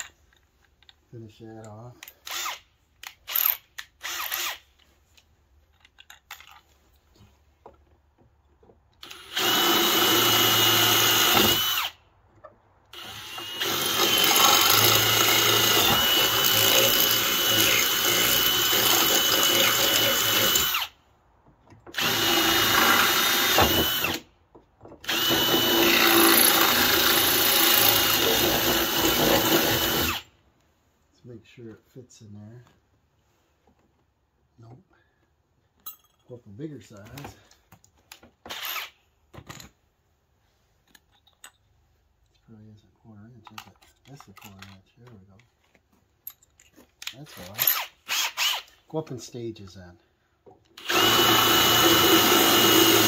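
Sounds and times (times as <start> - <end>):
cordless drill boring through metal: 2.1 - 4.6, 9.0 - 12.0, 12.9 - 21.0, 21.9 - 24.3, 25.0 - 30.3, 38.5 - 39.0, 47.4 - 48.8, 50.8 - 53.0.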